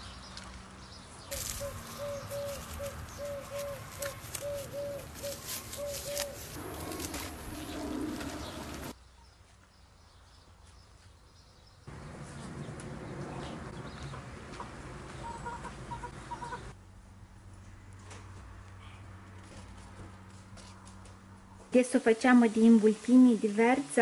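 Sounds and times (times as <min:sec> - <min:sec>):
birds calling: 0:00.0 - 0:09.0, 0:15.0 - 0:16.8.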